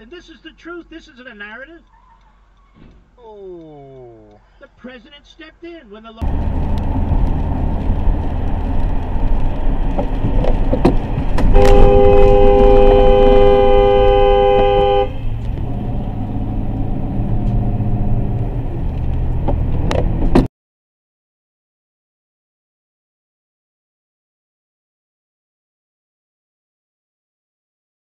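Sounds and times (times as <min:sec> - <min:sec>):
road and engine noise inside car: 0:06.2 - 0:20.5
two-note car horn: 0:11.5 - 0:15.4.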